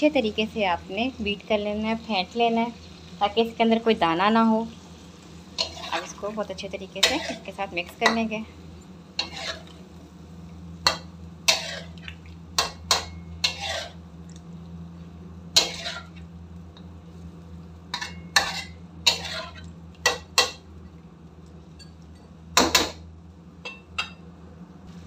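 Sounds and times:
steady low hum: 0:00.0 - 0:25.0
metal spatula scraping metal pan: 0:05.6 - 0:06.3, 0:07.0 - 0:08.2, 0:09.2 - 0:09.8, 0:11.5 - 0:12.0, 0:12.9 - 0:14.0, 0:15.6 - 0:16.2, 0:18.0 - 0:19.7.

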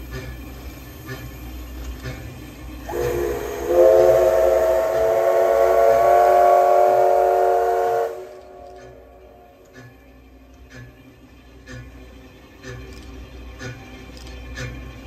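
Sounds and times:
steam locomotive whistle: 0:02.8 - 0:09.6.

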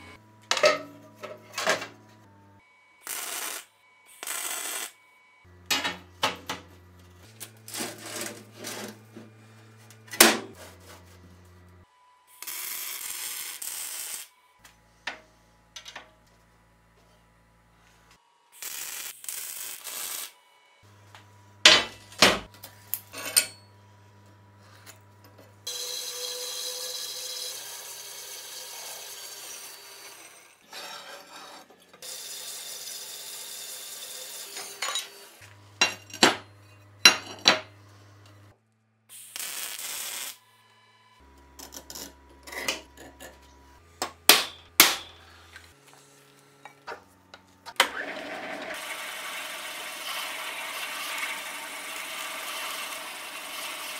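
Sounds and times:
welding crackle: 0:03.0 - 0:05.0, 0:12.4 - 0:14.3, 0:18.6 - 0:20.4, 0:39.1 - 0:40.4
band saw cutting steel: 0:07.2 - 0:11.2, 0:25.6 - 0:37.2, 0:47.7 - 0:53.9.

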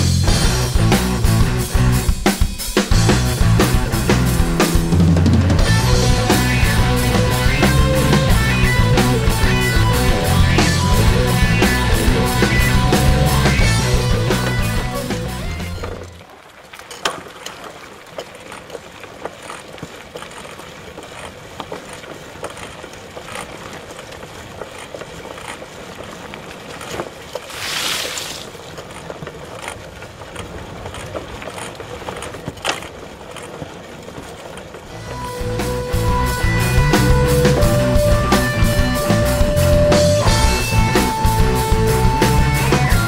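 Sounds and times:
bike clicks and knocks: 0:15.6 - 0:27.5, 0:28.2 - 0:34.8.

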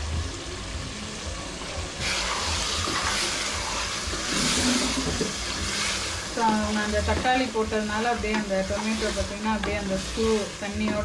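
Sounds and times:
chicken sizzling in a pot: 0:00.0 - 0:11.0.

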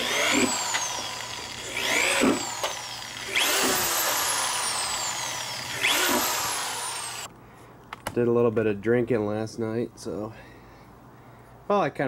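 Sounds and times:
power drill boring through plastic: 0:00.0 - 0:07.3.

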